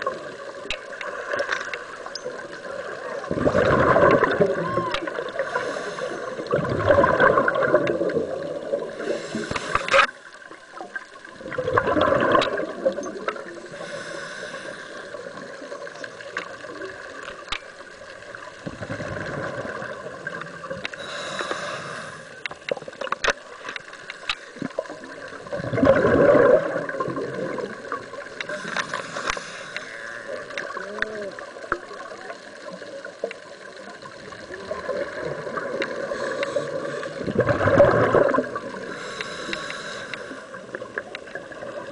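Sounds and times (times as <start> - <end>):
small clicks: 0.0 - 2.6, 15.6 - 18.6, 20.3 - 25.4, 28.2 - 34.4, 39.1 - 41.4
exhaled bubbles gurgling: 0.0 - 41.9
regulator hiss: 5.0 - 6.5, 8.7 - 10.8, 13.5 - 16.2, 20.6 - 22.7, 28.2 - 30.4, 38.7 - 40.7.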